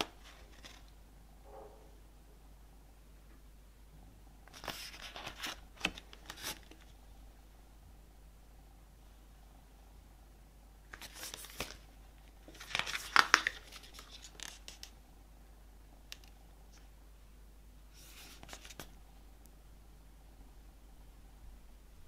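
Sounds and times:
paper and cardboard rustling: 0:00.0 - 0:00.9, 0:04.5 - 0:06.9, 0:11.0 - 0:14.9.

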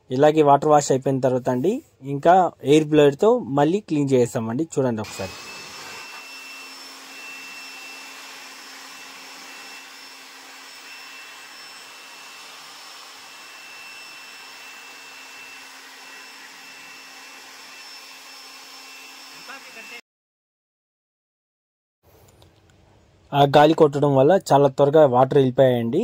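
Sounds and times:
electric air blower whining: 0:05.0 - 0:20.0.

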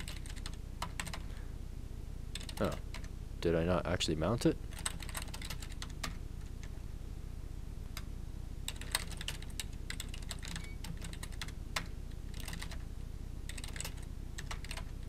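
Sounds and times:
keyboard typing clicks: 0:00.0 - 0:01.2, 0:08.7 - 0:12.8, 0:13.5 - 0:15.0
steady low hum: 0:00.0 - 0:15.0.

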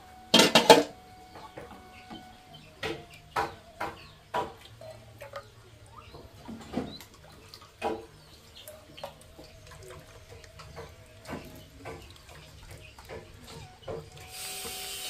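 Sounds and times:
ladle knocking against pots: 0:00.3 - 0:01.8
liquid splashing: 0:00.3 - 0:15.0.

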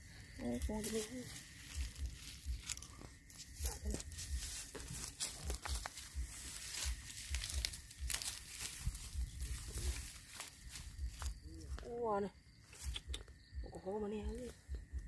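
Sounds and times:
dry straw crackling and tearing: 0:00.7 - 0:11.9.

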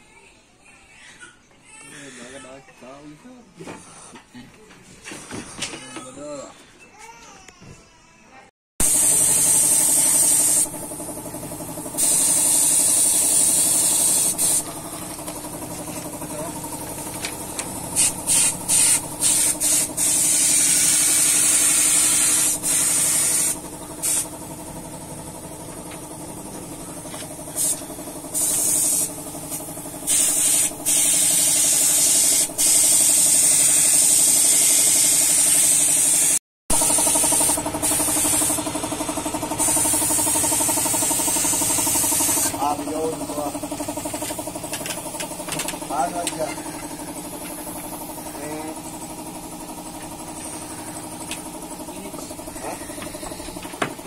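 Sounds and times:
air compressor humming: 0:02.2 - 0:06.5, 0:08.8 - 0:54.0
airbrush spraying hiss: 0:08.8 - 0:11.1, 0:12.0 - 0:15.7, 0:17.9 - 0:24.3, 0:27.5 - 0:36.4, 0:37.0 - 0:38.6, 0:39.6 - 0:43.5.

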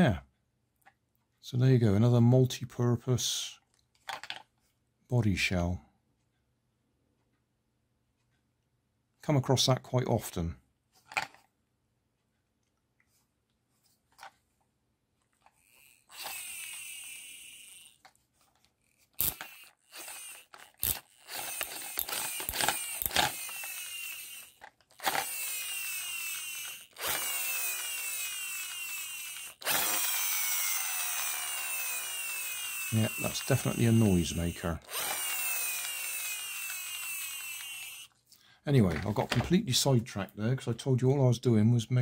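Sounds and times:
toy flywheel motor whirring: 0:15.3 - 0:38.2.

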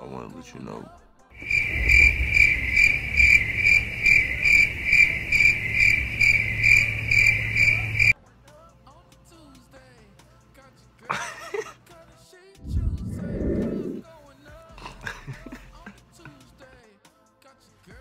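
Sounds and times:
cricket chirping: 0:01.4 - 0:08.2.

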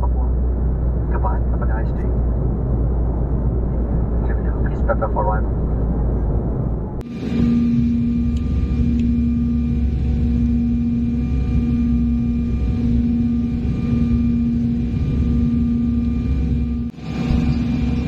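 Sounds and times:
jet engine and airflow rush: 0:00.0 - 0:18.0
strong low hum: 0:00.0 - 0:18.0
faint high steady tones: 0:07.0 - 0:18.0.

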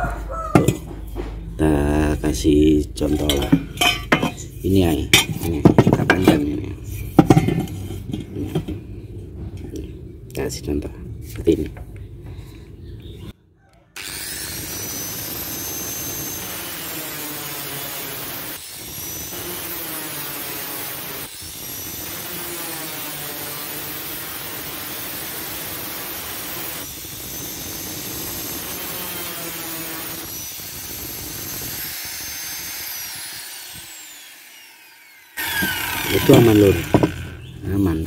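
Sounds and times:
angle grinder cutting steel: 0:14.0 - 0:37.6.

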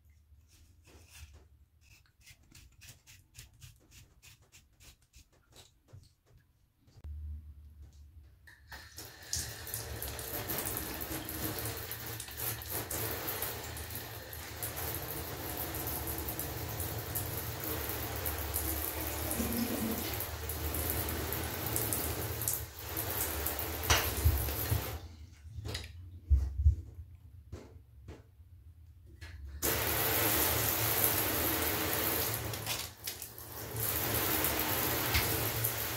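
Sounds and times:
shower spraying water on tub wall: 0:00.5 - 0:06.2, 0:08.5 - 0:25.2, 0:29.6 - 0:35.9.

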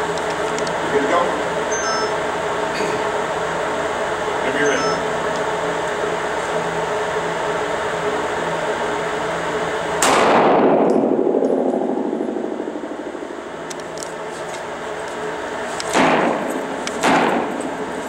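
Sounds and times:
pistol shot with echo: 0:10.0 - 0:12.5, 0:15.9 - 0:17.6.

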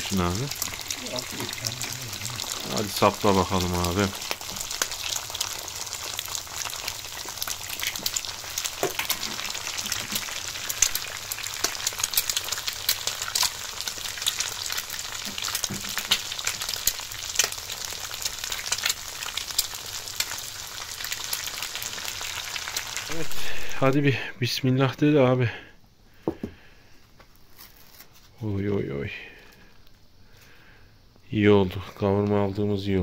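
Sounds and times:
food sizzling in a pan: 0:00.0 - 0:24.3
crackling pops of spitting fat: 0:04.2 - 0:22.1.

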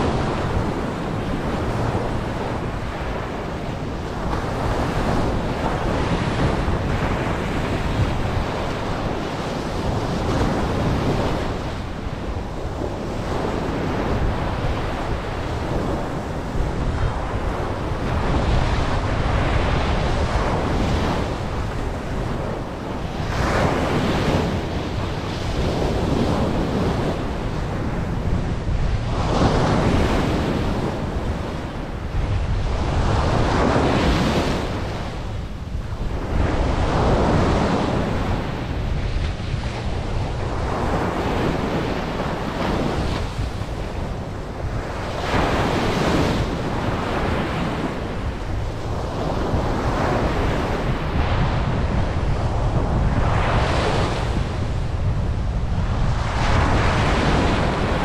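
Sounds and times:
ocean surf breaking on beach: 0:00.0 - 0:58.0
wind rumbling on microphone: 0:00.0 - 0:58.0.

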